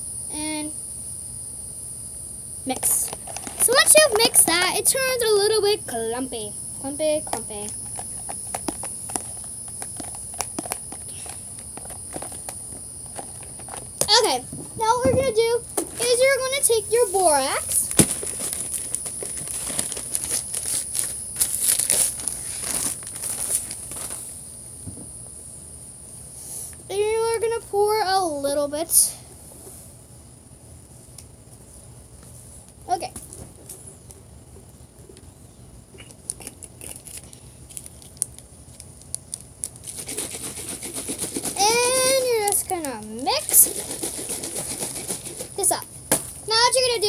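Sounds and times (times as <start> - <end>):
plastic bottle crackling: 7.3 - 16.2, 17.6 - 24.2
plastic bag crinkling: 17.5 - 24.2, 36.4 - 45.6.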